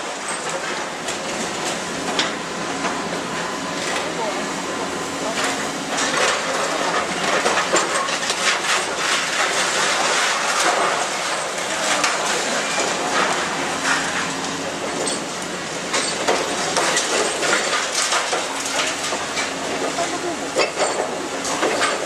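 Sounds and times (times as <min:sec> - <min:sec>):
excavator engine hum: 0:00.0 - 0:22.0
debris clattering down: 0:05.4 - 0:15.2, 0:15.9 - 0:22.0.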